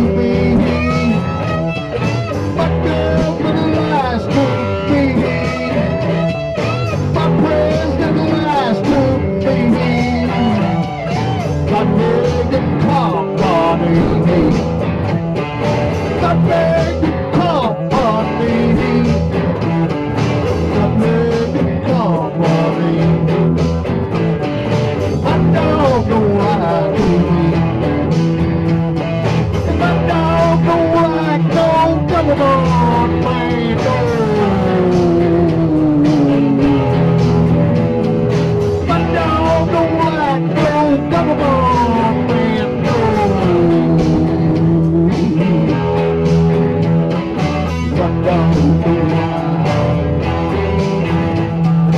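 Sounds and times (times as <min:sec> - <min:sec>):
blues-rock band playing: 0:00.0 - 0:51.9
lead guitar solo: 0:00.0 - 0:51.9.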